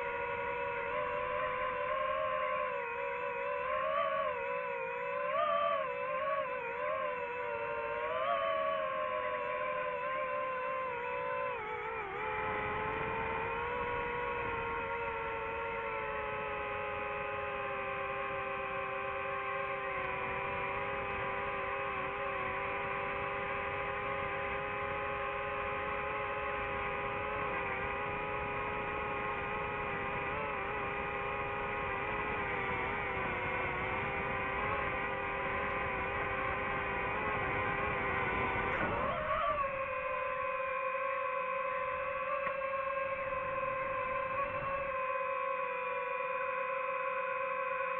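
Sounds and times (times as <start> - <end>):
drone motors whining: 0.0 - 47.9.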